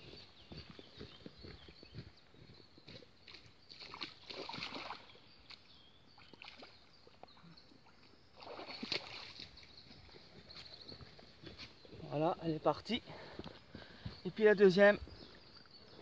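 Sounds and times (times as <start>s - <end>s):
water splashing and sloshing: 3.2s - 11.6s.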